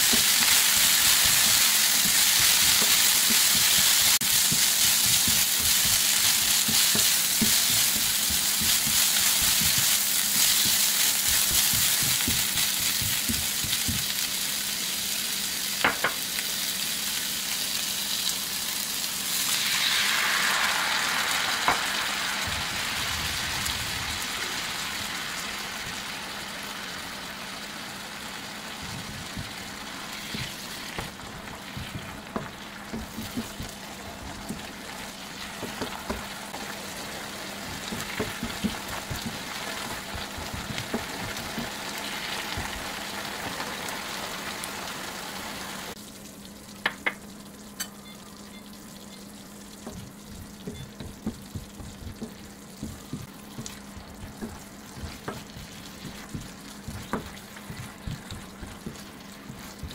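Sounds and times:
spatula stirring: 0.0 - 14.1, 28.8 - 34.8, 49.8 - 59.9
food sizzling in a frying pan: 0.0 - 59.9
spatula knocking on pan: 10.6 - 14.1, 30.3 - 33.8, 49.8 - 59.9
sauce poured into hot pan: 19.0 - 23.1.

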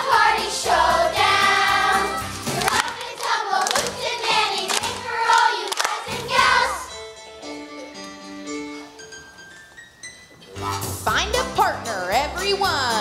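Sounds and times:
children's choir singing: 0.0 - 7.0
backing music: 0.0 - 13.0
sharp claps: 2.5 - 6.1.

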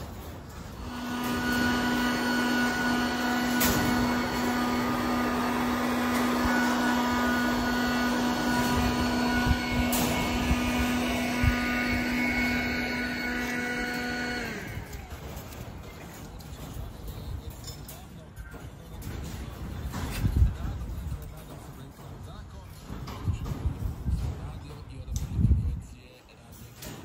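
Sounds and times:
motor running steadily: 0.0 - 17.4.

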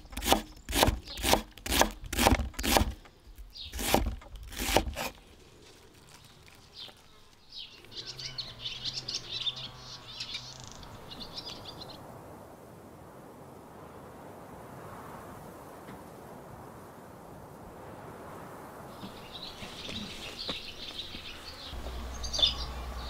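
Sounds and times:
birds chirping: 0.0 - 4.1, 5.3 - 12.0, 18.9 - 23.0
knife chopping on wooden board: 0.2 - 3.0, 3.8 - 5.1.

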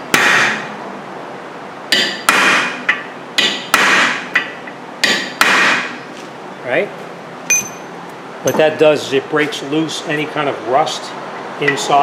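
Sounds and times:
hammer tapping on metal punch: 1.9 - 5.9, 7.5 - 7.9.

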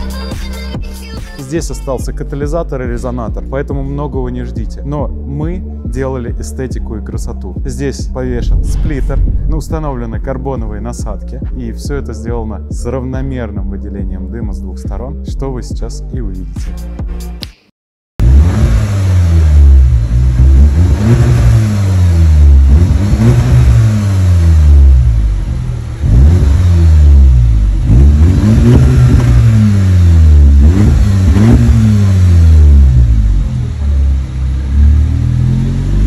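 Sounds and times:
car engine revving: 18.2 - 36.0.

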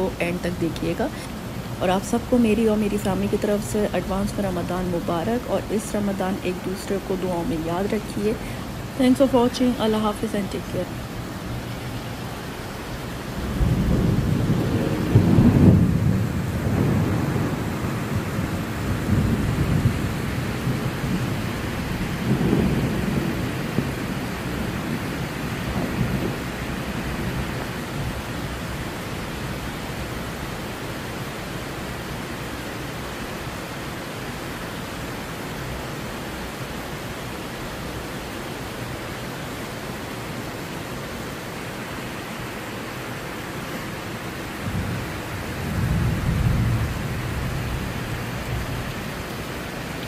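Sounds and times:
heavy rain pouring: 0.0 - 50.0
low rumbles of thunder: 13.3 - 28.8, 44.6 - 49.8.

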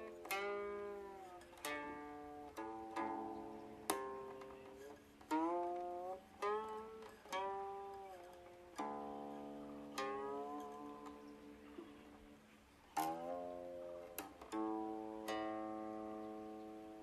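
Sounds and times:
plucked string notes bending: 0.0 - 17.0.

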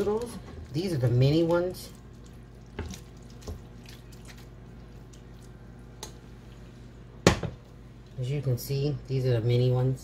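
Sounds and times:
faint low hum: 0.0 - 10.0
soft wet plops: 1.4 - 6.7.

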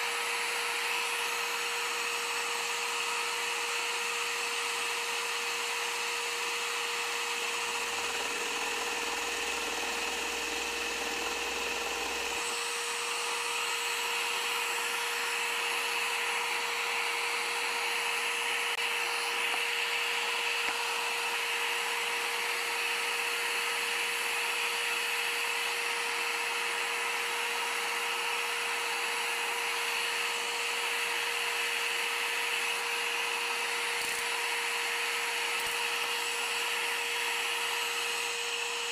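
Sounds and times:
scroll saw blade running: 0.0 - 22.9, 31.9 - 38.9
motor hum: 6.1 - 12.8.

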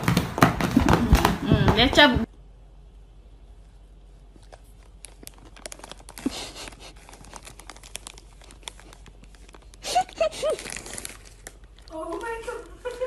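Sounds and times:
plastic snack bag crinkling: 4.3 - 13.0.

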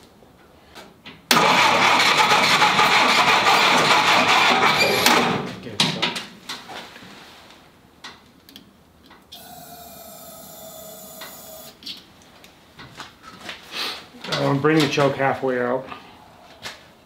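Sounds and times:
engine turning over: 1.3 - 5.5
high squeak: 4.8 - 5.1.

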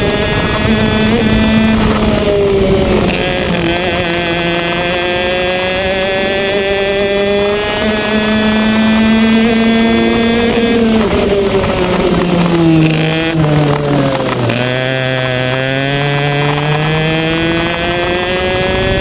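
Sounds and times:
racing kart engine: 0.0 - 19.0.

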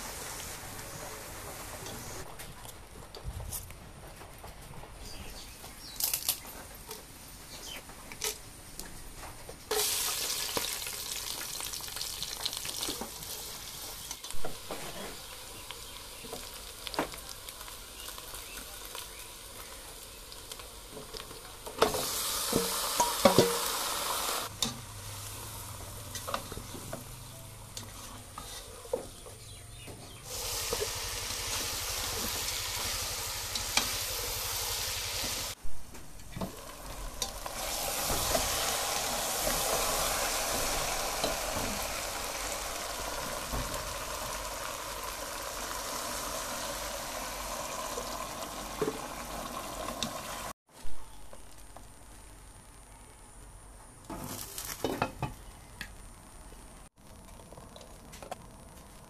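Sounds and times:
meat sizzling in oil: 9.7 - 27.3, 30.3 - 35.6, 36.4 - 50.6.

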